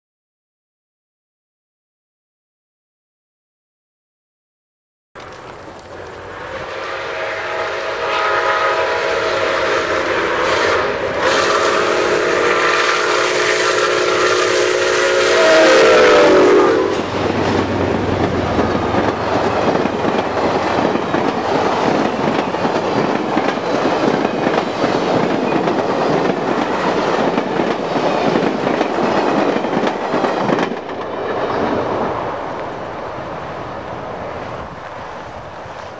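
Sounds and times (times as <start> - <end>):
steam locomotive chord whistle: 6.0 - 17.9
train wheels clattering on rails: 15.7 - 35.9.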